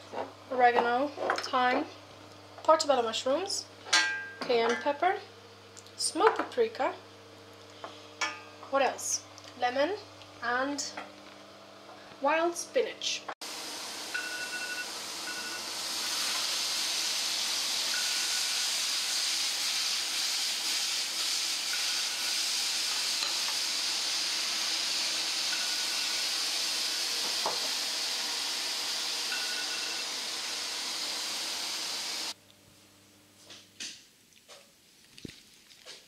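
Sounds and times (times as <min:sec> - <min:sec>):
mushrooms sizzling in frying pan: 0:13.4 - 0:32.4.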